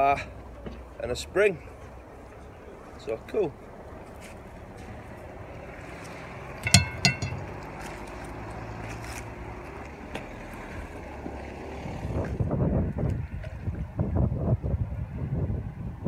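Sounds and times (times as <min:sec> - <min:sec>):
wind buffeting microphone: 0:11.8 - 0:16.0.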